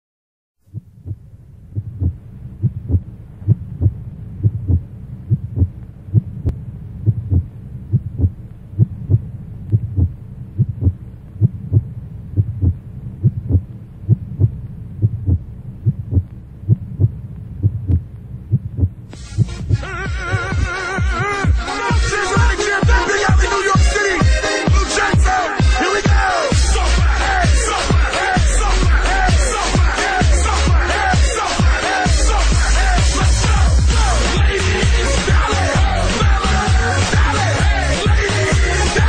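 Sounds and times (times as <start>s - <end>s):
heartbeat double thuds: 0.6s - 23.5s
steady low hum: 0.6s - 39.0s.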